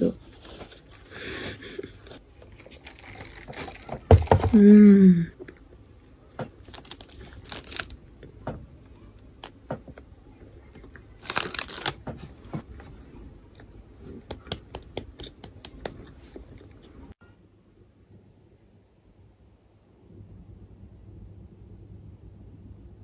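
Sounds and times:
paper crinkling: 2.1 - 4.4, 6.6 - 8.0, 11.2 - 12.6
paper wrapper rustling: 2.5 - 4.4, 6.6 - 8.0, 11.2 - 12.0.

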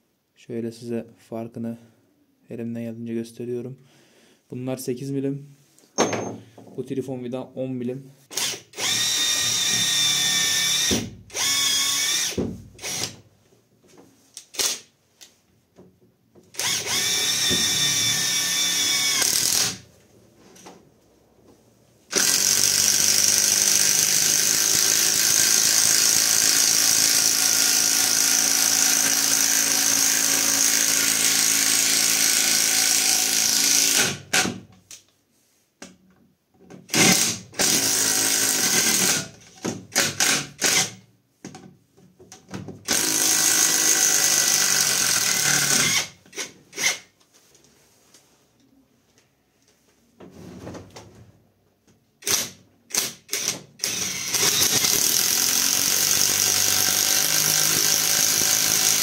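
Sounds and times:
impact wrench driving screw: 8.3 - 13.2, 16.5 - 19.8, 36.9 - 41.0, 42.8 - 47.1, 52.2 - 59.0.

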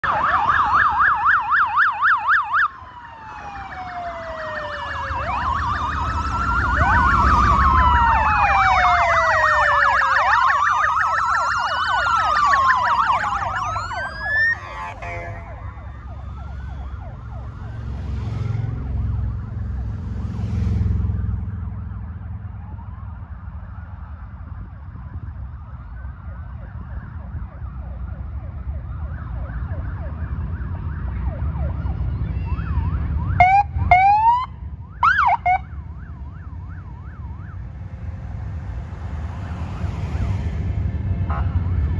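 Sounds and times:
emergency sirens wailing: 0.0 - 41.9
motorcycles riding past: 3.4 - 22.4.

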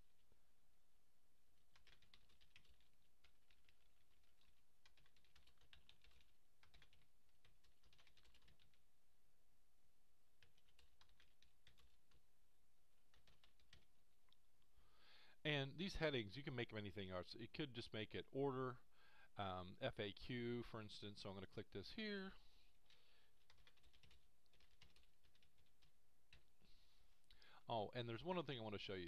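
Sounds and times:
faint typing on keyboard: 1.6 - 8.9, 10.3 - 14.7, 19.9 - 29.0.

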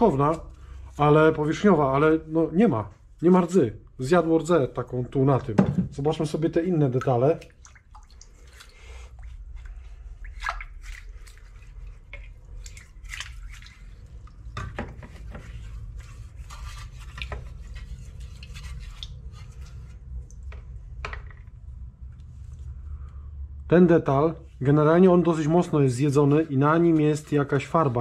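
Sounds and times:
liquid dripping and splashing: 6.3 - 20.8.

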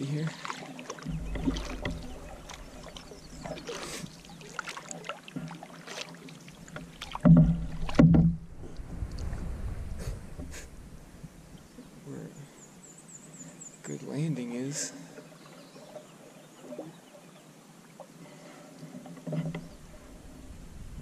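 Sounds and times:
paddles splashing in water: 0.0 - 11.8
louder thumps: 1.1 - 3.9, 7.1 - 11.4.

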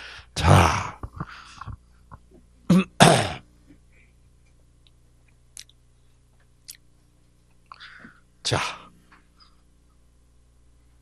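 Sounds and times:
man coughing: 2.7 - 3.5.

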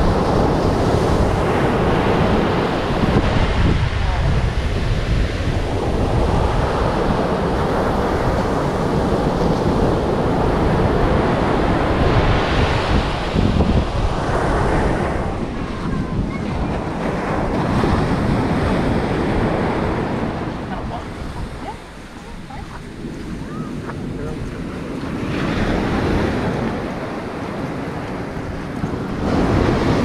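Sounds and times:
ocean surf breaking: 0.0 - 30.0
wind buffeting microphone: 0.0 - 30.0.

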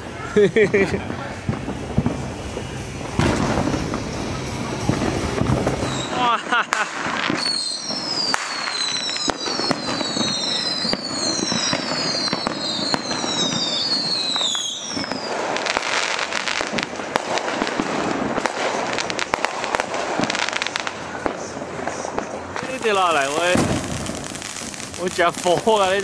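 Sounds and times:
fireworks bangs and crackling: 0.0 - 26.0
high falling whistles: 5.8 - 6.4, 7.3 - 15.4.

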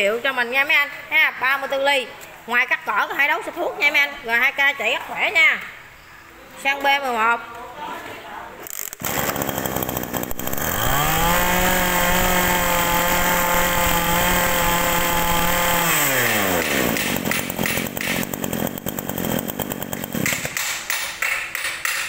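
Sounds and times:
brush cutter engine revving: 8.6 - 20.5.

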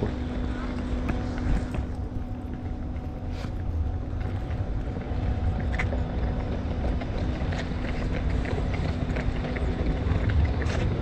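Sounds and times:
distant city traffic: 0.0 - 11.0
faint steady hum: 0.0 - 11.0
footsteps on stone paving: 0.0 - 11.0
wind: 0.0 - 11.0.

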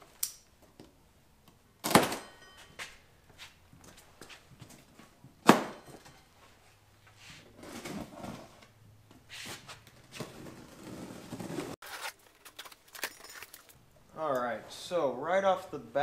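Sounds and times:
cardboard rustling and scraping: 6.6 - 8.7, 9.3 - 13.8.

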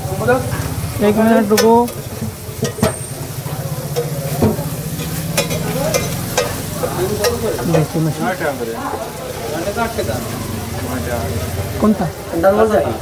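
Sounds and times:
fish sizzling in oil: 0.0 - 13.0
metal spatula scraping pan: 1.4 - 8.1.

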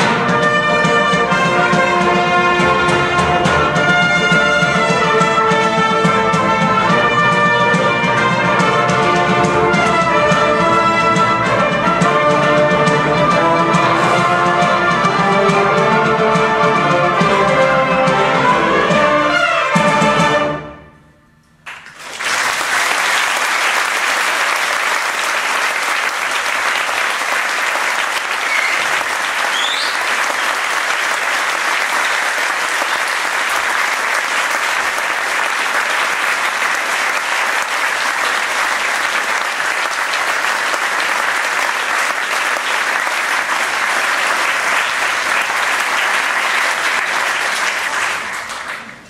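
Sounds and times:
audience applauding: 21.7 - 49.0.

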